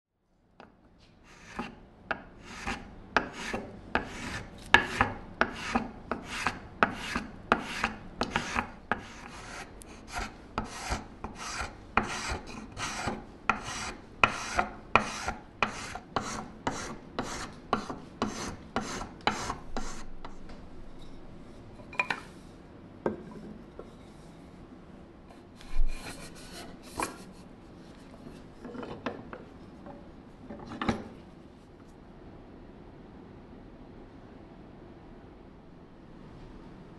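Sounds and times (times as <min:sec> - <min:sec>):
spokeshave scraping wood: 0:01.3 - 0:01.8, 0:02.4 - 0:20.4, 0:25.6 - 0:29.0.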